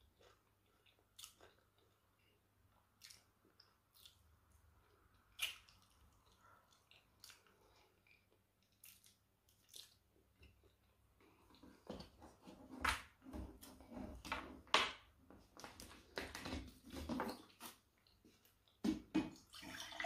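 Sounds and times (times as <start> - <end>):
soft chewing: 0.0 - 12.6, 16.8 - 18.8
wet mouth clicks and smacks: 2.8 - 10.8.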